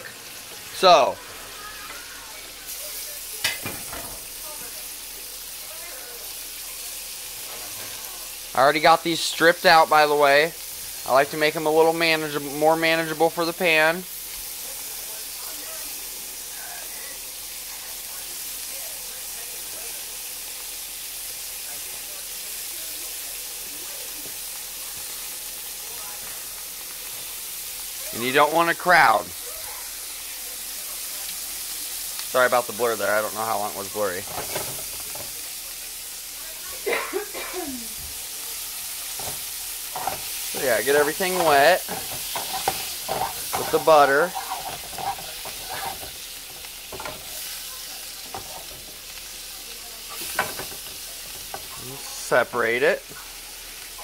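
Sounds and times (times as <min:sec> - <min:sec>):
mushrooms sizzling in butter: 0:00.0 - 0:54.0
wooden spatula scraping a pan: 0:33.9 - 0:35.4, 0:39.1 - 0:49.0.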